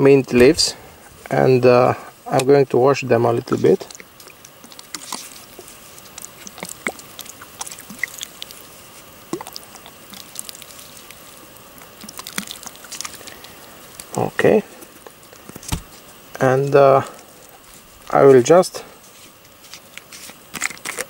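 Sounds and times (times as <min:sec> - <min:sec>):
water dripping and splashing: 0:03.4 - 0:14.2.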